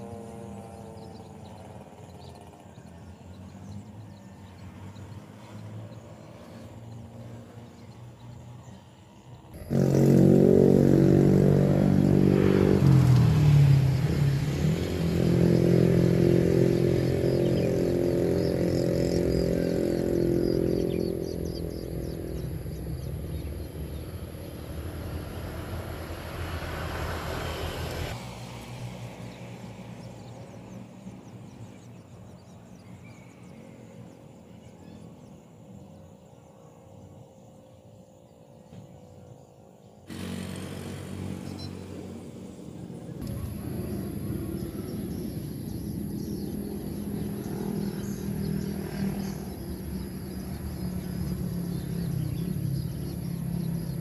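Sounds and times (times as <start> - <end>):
engine running: 9.5 - 30.0, 40.1 - 54.0.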